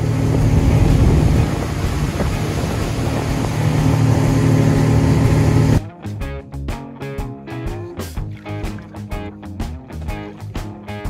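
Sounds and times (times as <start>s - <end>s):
boat engine drone: 0.0s - 5.8s, 7.8s - 10.8s
water noise: 0.0s - 5.8s, 7.7s - 11.0s
wind: 0.0s - 5.8s.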